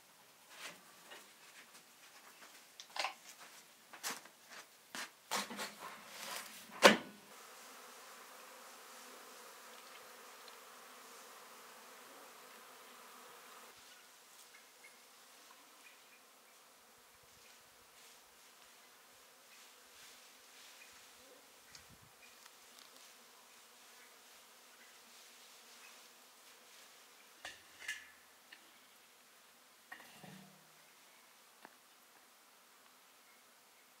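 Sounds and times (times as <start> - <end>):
honeybees buzzing: 7.3 - 27.5.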